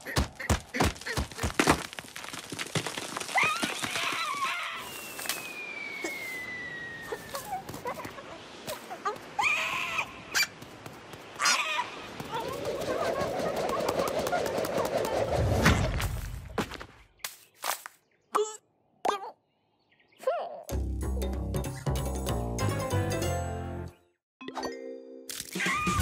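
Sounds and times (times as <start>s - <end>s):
long falling whistle: 4.8s - 7.2s.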